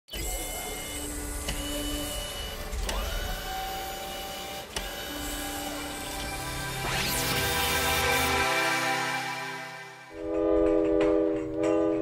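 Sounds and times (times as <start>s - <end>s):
sharp mechanical clicks: 0.1s - 6.4s
motorised whirring: 0.1s - 8.4s
short rising whine: 0.2s - 10.4s.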